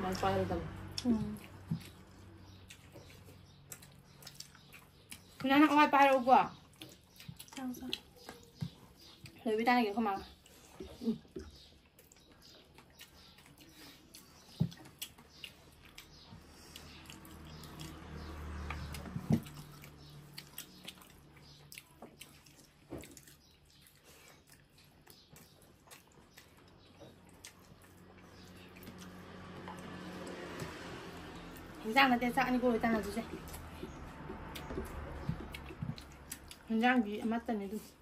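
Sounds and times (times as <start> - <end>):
chewing and mouth clicks: 0.7 - 9.5, 10.2 - 31.8, 32.8 - 37.2.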